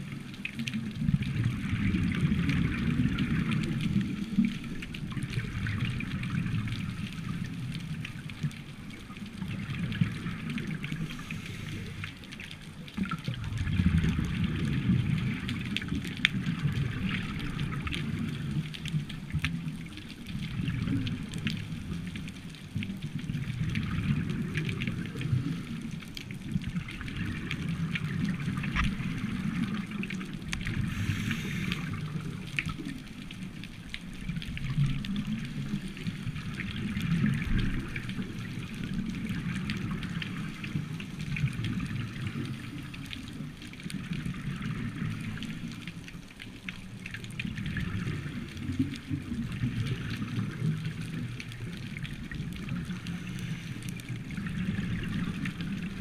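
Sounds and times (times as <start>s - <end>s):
exhaled bubbles underwater: 0.0s - 56.0s
hissing regulator breaths: 30.8s - 32.0s.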